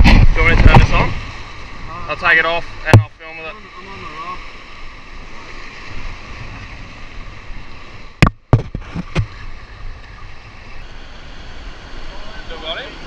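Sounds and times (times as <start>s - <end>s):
muffled surf and wind: 0.0s - 13.0s
sharp knocks on camera case: 8.2s - 9.3s.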